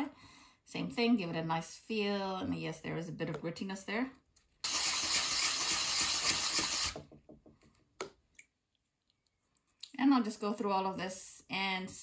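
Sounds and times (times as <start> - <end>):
bowl grinding on sandpaper: 4.7 - 6.9.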